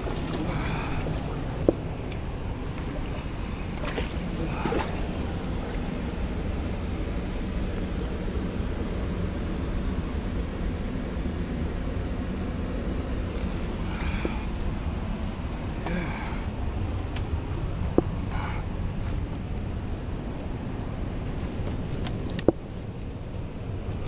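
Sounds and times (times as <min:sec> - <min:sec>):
river water rushing: 0:00.0 - 0:05.9.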